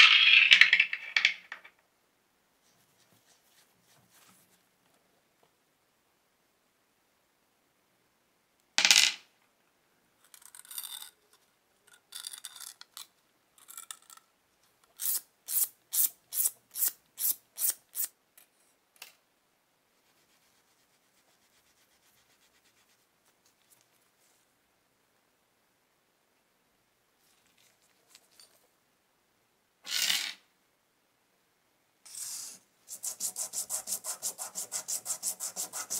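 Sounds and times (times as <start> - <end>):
rubbing strokes on brass parts: 32.1 - 35.9.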